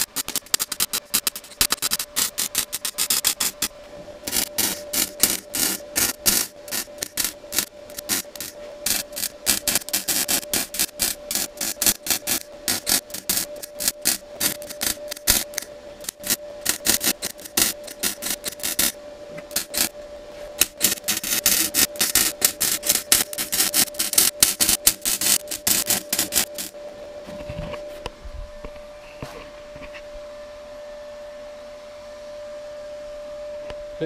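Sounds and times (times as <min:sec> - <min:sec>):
welder arc crackling: 0:00.0 - 0:27.0
steady hum: 0:00.0 - 0:34.0.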